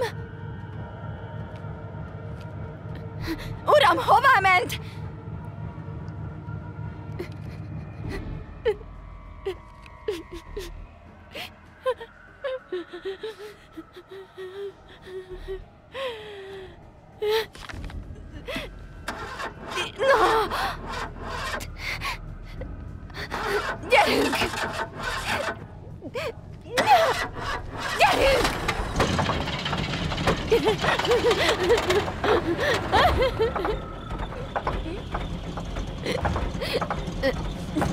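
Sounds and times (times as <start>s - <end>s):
woman crying and whimpering: 0.0s - 0.2s, 7.2s - 18.8s, 19.7s - 28.7s, 30.4s - 34.2s.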